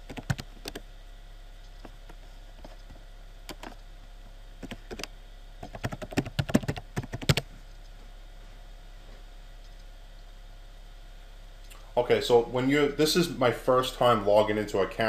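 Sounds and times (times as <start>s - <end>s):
keyboard typing: 0.0s - 0.8s, 3.5s - 3.8s, 4.6s - 7.4s.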